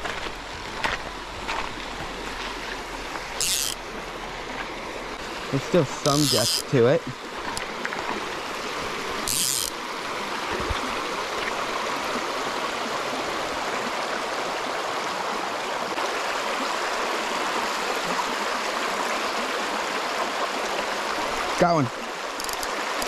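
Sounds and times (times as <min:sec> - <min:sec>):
river rushing over cobbles: 0:00.0 - 0:23.0.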